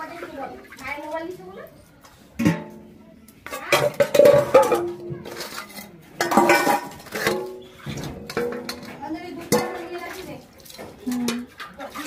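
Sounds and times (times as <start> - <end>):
metal pots and plates clanking: 2.4 - 12.0.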